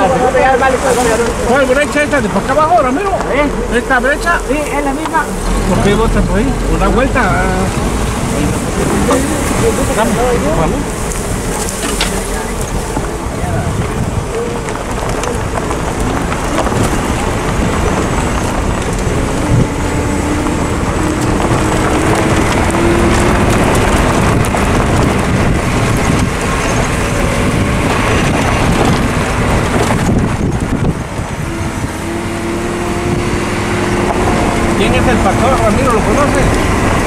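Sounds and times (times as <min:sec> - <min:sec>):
vehicle engine running: 0:00.0 - 0:37.0
wind buffeting microphone: 0:00.0 - 0:37.0.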